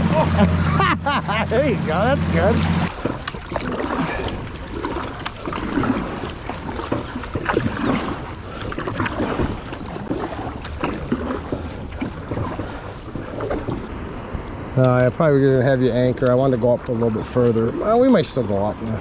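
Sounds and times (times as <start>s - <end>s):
short splashes and drips: 0.0s - 14.1s
wash of moving water: 0.0s - 19.0s
paddle dipping through water: 0.2s - 15.2s
paddle clicks on hull: 2.6s - 13.9s.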